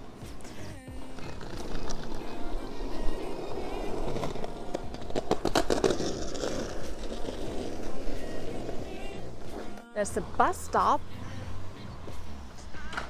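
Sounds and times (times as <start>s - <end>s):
skateboard wheels rolling on asphalt: 0.0s - 13.0s
sharp skateboard clacks: 3.6s - 8.0s.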